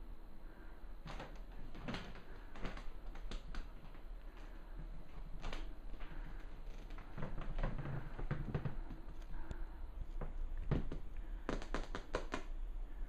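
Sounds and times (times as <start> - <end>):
snowballs clicking on vinyl floor: 10.7 - 12.6.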